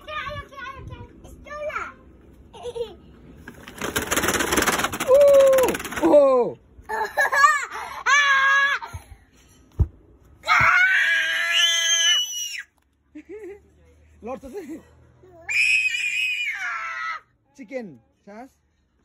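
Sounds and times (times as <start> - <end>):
children squealing and laughing: 6.9 - 9.0, 10.4 - 12.7, 15.4 - 17.3.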